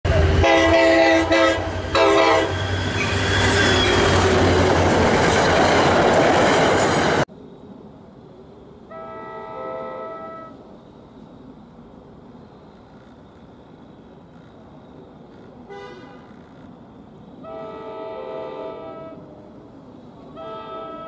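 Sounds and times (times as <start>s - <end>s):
train passing close: 0.0s - 21.0s
train horn blasts: 0.1s - 4.0s, 8.9s - 10.6s, 15.7s - 16.3s, 17.4s - 19.4s, 20.2s - 21.0s
distant train horn: 0.1s - 4.6s, 8.9s - 10.6s, 15.7s - 16.4s, 17.4s - 19.6s, 20.2s - 21.0s.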